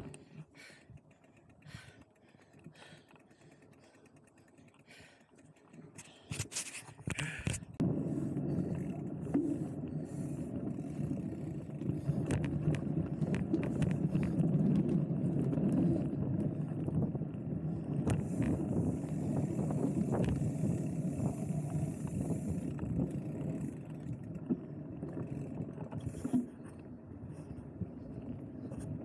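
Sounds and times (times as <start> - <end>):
bike tyres rumbling on dirt trail: 0.0 - 29.0
scrapes: 6.0 - 7.8.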